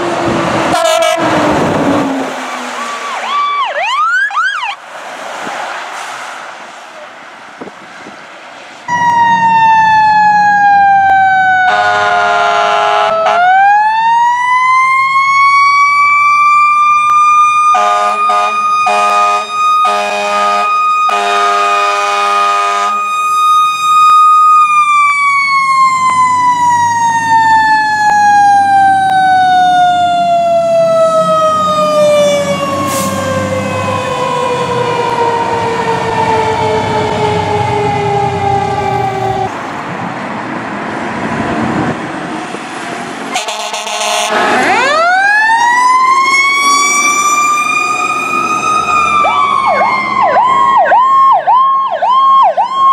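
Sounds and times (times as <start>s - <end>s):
fire truck siren wailing: 0.0s - 8.1s, 8.9s - 40.0s, 41.3s - 52.9s
truck engine rumbling: 0.0s - 52.9s
air horn blasts: 0.7s - 1.4s, 11.6s - 13.6s, 17.8s - 23.1s, 43.3s - 44.6s.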